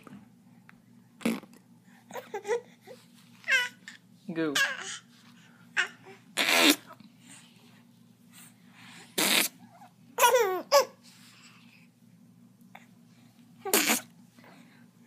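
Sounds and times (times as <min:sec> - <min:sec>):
baby laughing: 0:10.2 - 0:11.0.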